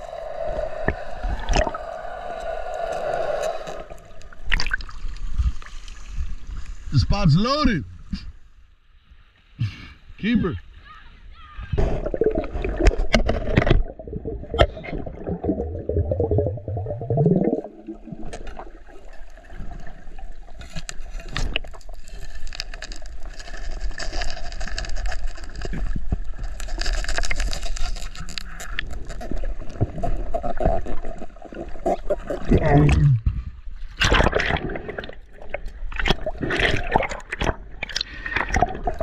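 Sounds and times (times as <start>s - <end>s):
underwater crackling hiss: 0.0s - 4.5s
underwater rushing and bubbles: 0.0s - 6.9s, 11.8s - 39.0s
sharp clicks and scrapes: 20.6s - 31.2s.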